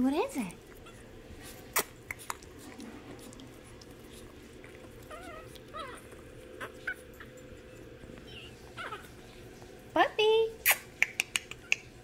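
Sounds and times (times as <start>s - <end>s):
puppies whimpering: 3.2s - 9.4s.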